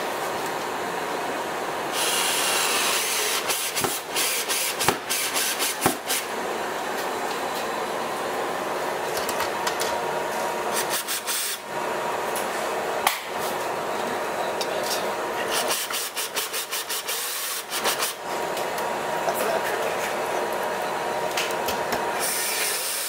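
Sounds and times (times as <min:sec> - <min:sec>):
drill driving screws: 0:01.9 - 0:06.2, 0:15.5 - 0:18.2.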